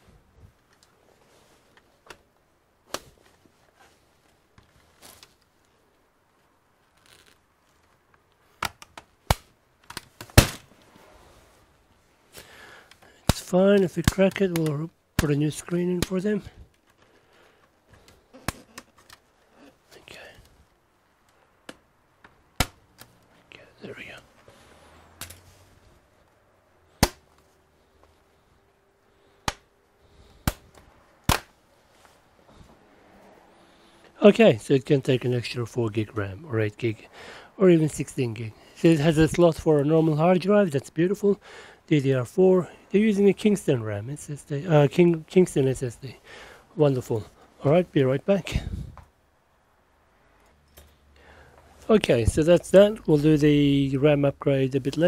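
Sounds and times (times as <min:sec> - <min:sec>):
plastic clips clicking and snapping: 0:08.5 - 0:10.6.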